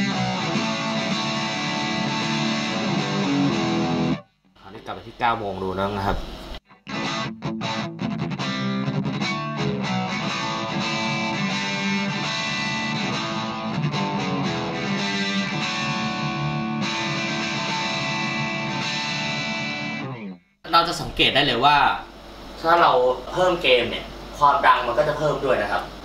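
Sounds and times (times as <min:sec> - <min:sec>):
lightly distorted electric guitar: 0:00.0 - 0:04.3, 0:06.0 - 0:20.5.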